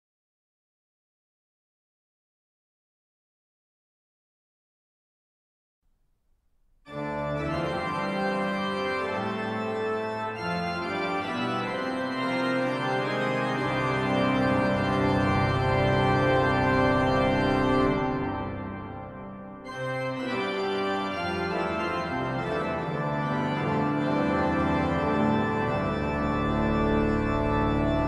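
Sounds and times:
pipe organ playing a toccata: 6.9 - 28.0.

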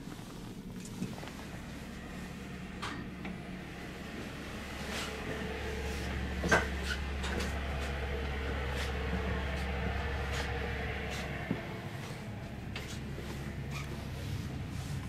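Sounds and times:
train interior hum: 0.0 - 15.0
knocks clicks and creaks: 2.0 - 15.0.

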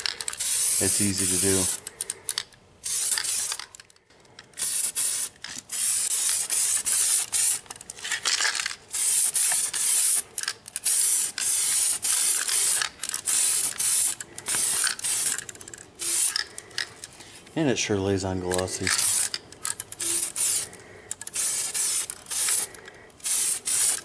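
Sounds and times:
aerosol spray can hissing: 0.4 - 1.8, 4.6 - 7.6, 8.9 - 15.4, 16.0 - 16.4, 20.0 - 20.7, 21.3 - 24.0.

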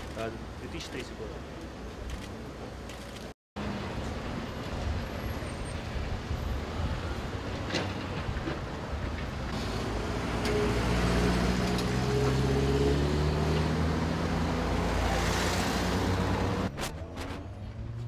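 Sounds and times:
car passing with tyre noise: 9.5 - 18.0.

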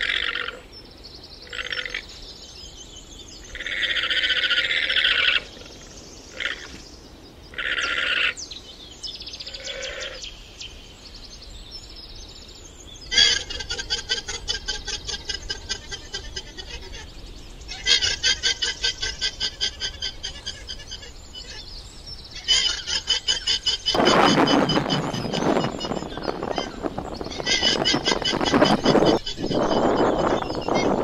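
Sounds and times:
llama shrill calls: 0.0 - 0.6, 3.6 - 5.6, 7.5 - 8.4, 13.1 - 17.1, 17.7 - 21.6, 22.4 - 31.0.

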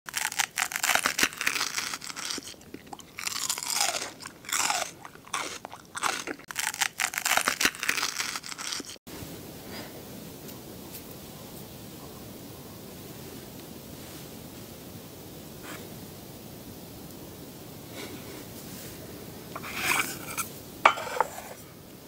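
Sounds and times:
crunchy bites and chewing: 0.1 - 9.0
faint steady hiss: 9.1 - 22.0.

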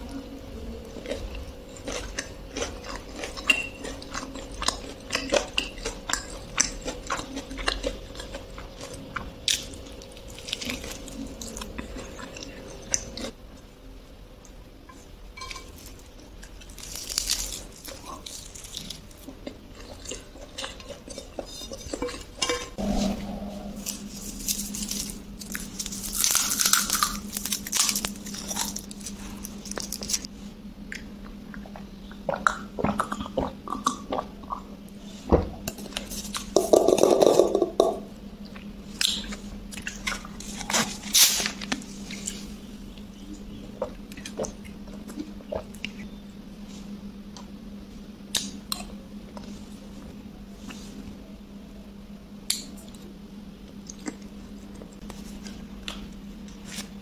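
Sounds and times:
faint steady hum: 0.0 - 57.0
crunchy chewing: 0.6 - 13.4, 14.9 - 30.3, 35.7 - 47.6.

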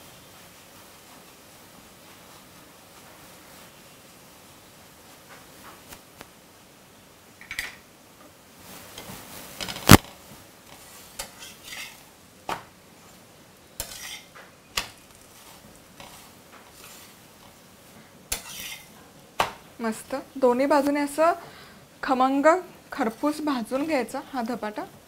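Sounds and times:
faint background noise: 0.0 - 25.0
metal turner scraping on a griddle: 10.6 - 12.1, 13.8 - 17.6, 18.3 - 19.0.

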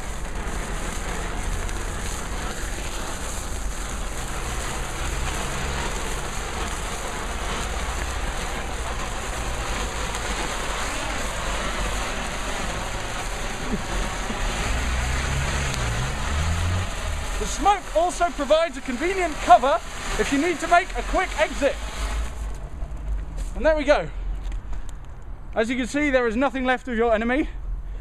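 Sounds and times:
firework fountain hissing: 0.0 - 25.0.

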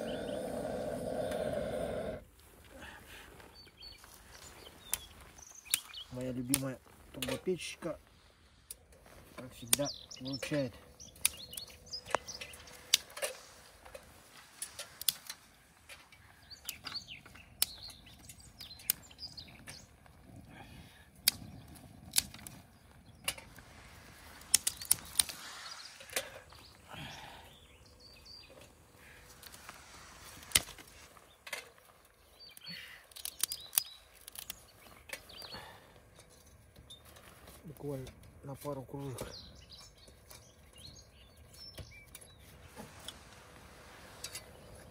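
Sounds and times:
camp gear clicks and knocks: 8.6 - 20.4, 21.1 - 26.8, 28.4 - 38.4
soft rustling: 12.0 - 17.4, 22.4 - 26.9, 28.5 - 32.4, 42.4 - 44.9.

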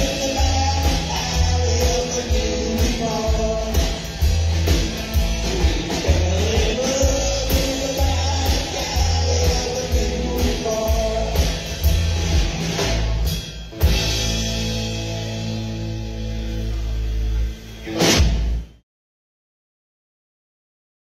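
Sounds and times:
drum kit beat: 0.0 - 16.0
electric guitar lead: 0.0 - 18.7
upright bass: 0.0 - 18.8.

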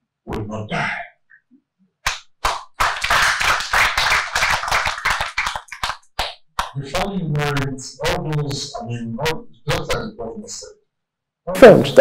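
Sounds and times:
audience applauding: 2.4 - 6.7.

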